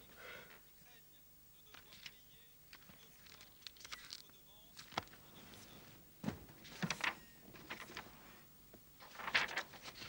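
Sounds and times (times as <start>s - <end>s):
paper rustling: 1.7s - 5.8s, 6.6s - 8.2s, 9.0s - 10.0s.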